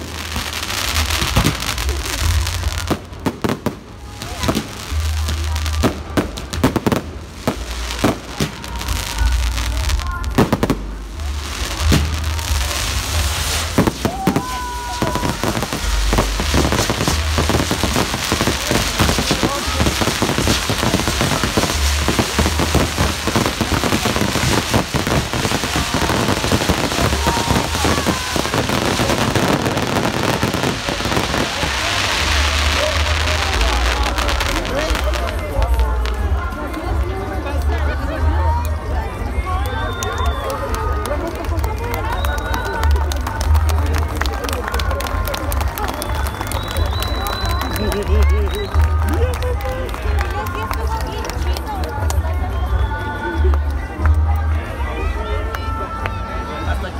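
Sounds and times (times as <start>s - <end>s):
fireworks bursting: 0.0s - 36.5s.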